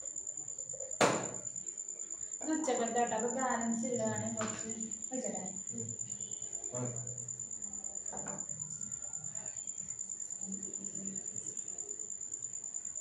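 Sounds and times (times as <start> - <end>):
cricket chirping: 0.0 - 13.0.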